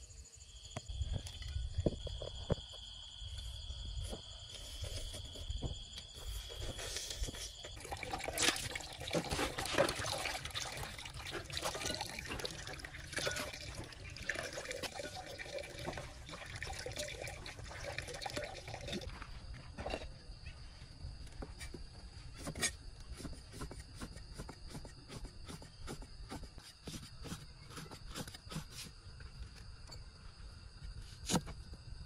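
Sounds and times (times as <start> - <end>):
water pouring into plastic basin: 7.7 - 19.2
water splashing: 7.8 - 19.0.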